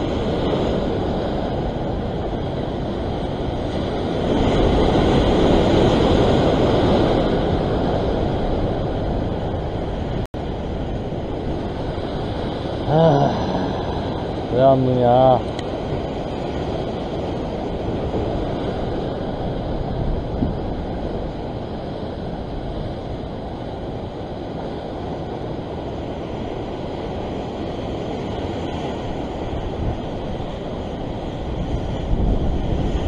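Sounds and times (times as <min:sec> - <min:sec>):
ocean surf against rocks: 0:00.0 - 0:33.0
wind on microphone: 0:00.0 - 0:33.0.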